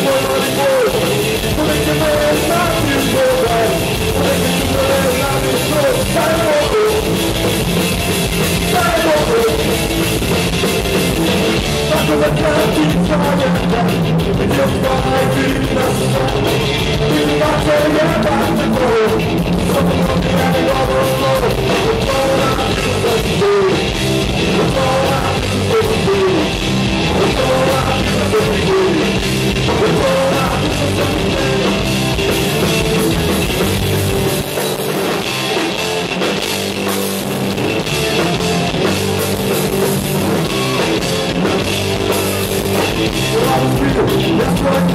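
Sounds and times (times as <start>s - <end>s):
person singing: 0.0s - 7.2s, 8.6s - 10.0s, 11.5s - 31.8s, 40.3s - 44.9s
punk rock band playing: 0.0s - 44.9s.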